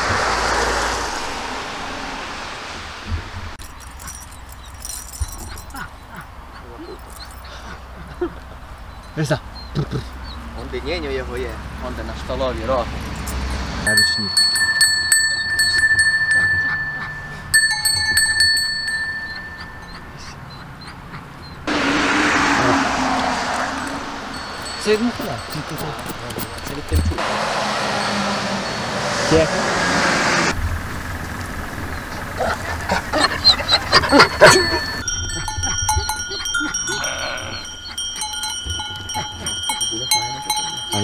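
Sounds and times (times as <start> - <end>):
sheep bell ringing: 3.6 - 6.0, 13.0 - 20.9, 23.7 - 27.2, 27.9 - 29.4, 33.4 - 41.0.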